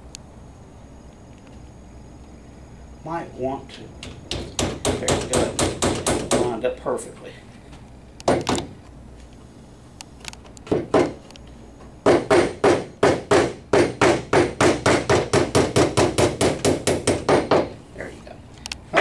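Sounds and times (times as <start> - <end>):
hammer tapping wooden dowel: 4.0 - 6.6.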